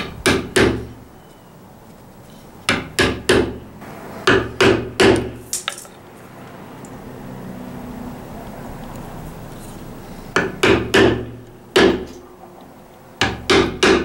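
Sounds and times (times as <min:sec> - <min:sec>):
hammer striking chisel into wood: 0:00.0 - 0:01.0, 0:02.7 - 0:03.6, 0:04.2 - 0:05.4, 0:10.4 - 0:12.2, 0:13.2 - 0:14.0.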